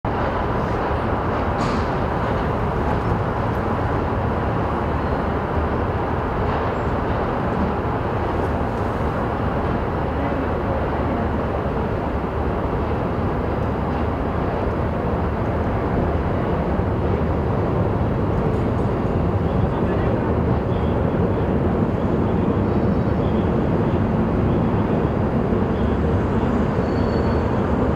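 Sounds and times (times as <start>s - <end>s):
diesel locomotive engine: 0.1s - 27.9s
freight train rolling: 0.1s - 27.9s.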